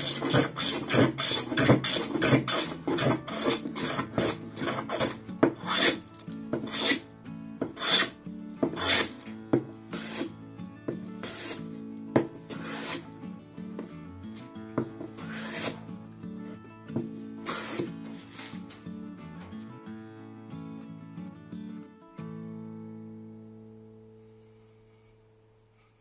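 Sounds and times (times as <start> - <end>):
hand plane shaving wood: 0.0 - 7.0, 7.6 - 10.3, 11.2 - 11.7, 12.5 - 13.1, 14.9 - 15.8, 17.4 - 18.5.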